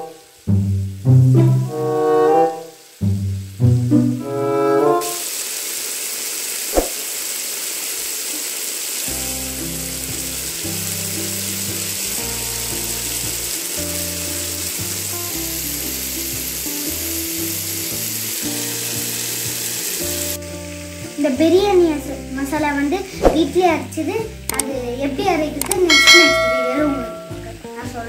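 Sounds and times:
food sizzling in a pot: 0:00.0 - 0:28.0
background music: 0:09.1 - 0:28.0
sharp click: 0:25.6 - 0:25.9.

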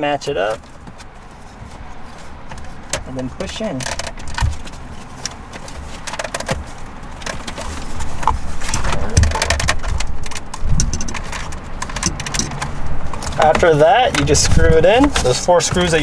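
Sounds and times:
plastic clicks and knocks: 0:03.7 - 0:15.9.

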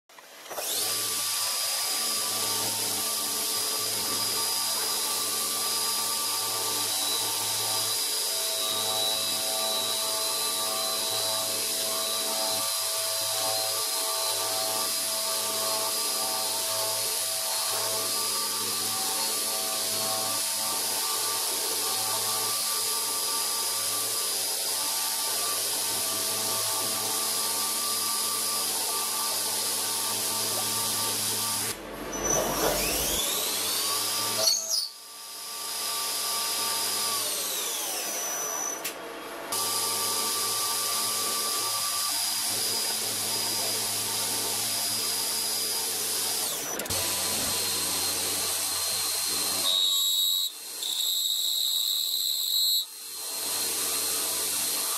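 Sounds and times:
milling machine cutting metal: 0:00.5 - 0:38.9, 0:39.6 - 0:54.9
machine pitch sweeping up and down: 0:31.7 - 0:33.8.

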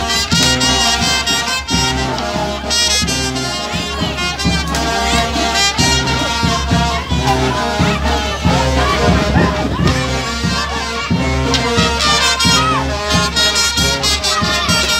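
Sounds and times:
brass band playing: 0:00.0 - 0:14.9.

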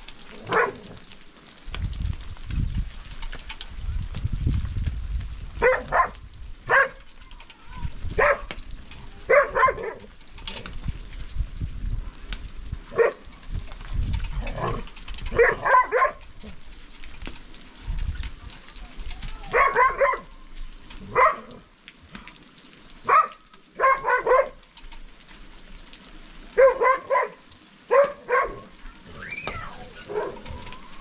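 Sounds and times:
rain pattering: 0:00.0 - 0:31.0
animal calling: 0:28.3 - 0:31.0.

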